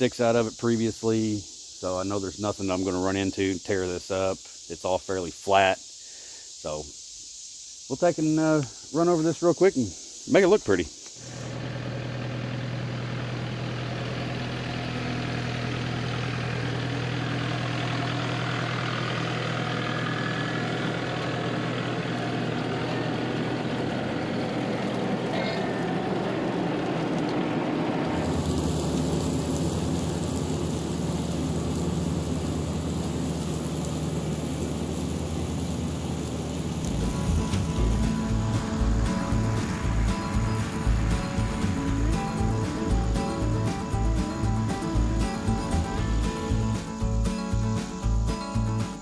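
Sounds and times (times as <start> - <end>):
mower hum: 11.2 - 49.0
diesel tractor engine under load: 11.5 - 48.7.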